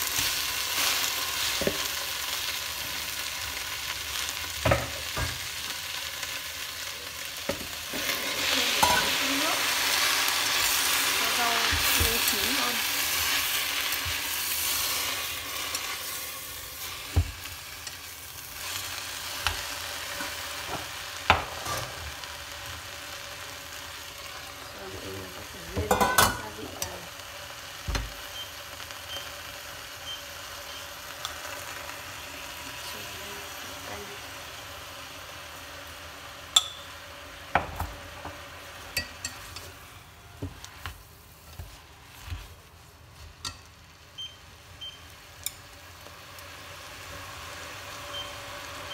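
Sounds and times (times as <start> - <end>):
leaves sizzling in a pot: 0.0 - 48.9.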